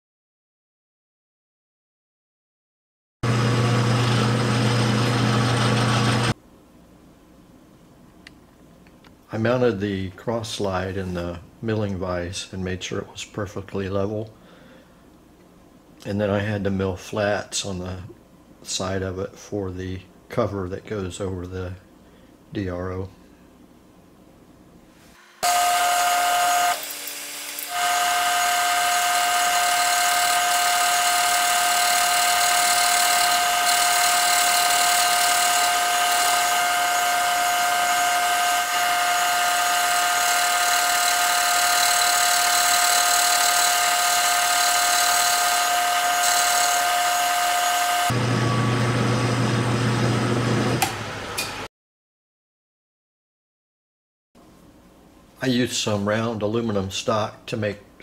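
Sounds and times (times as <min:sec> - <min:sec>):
milling machine whine: 0:03.2 - 0:06.4, 0:25.2 - 0:51.6.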